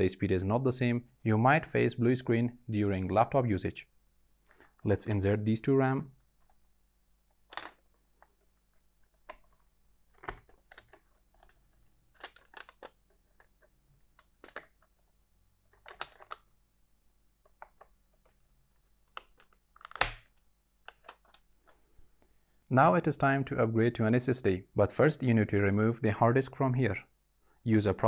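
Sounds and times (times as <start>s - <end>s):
memory modules clicking into slots: 7.4s - 8.3s.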